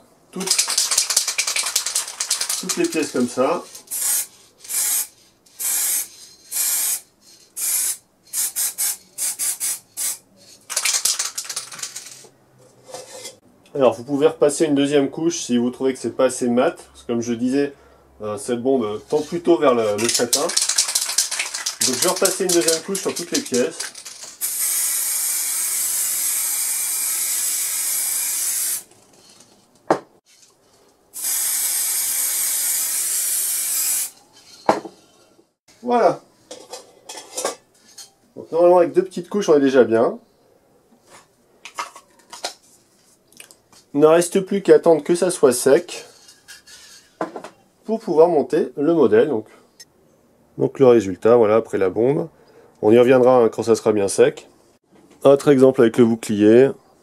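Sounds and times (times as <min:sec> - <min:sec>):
aerosol can spraying: 0:00.4 - 0:03.2, 0:03.9 - 0:07.0, 0:07.6 - 0:12.2, 0:20.0 - 0:28.9, 0:31.2 - 0:34.2.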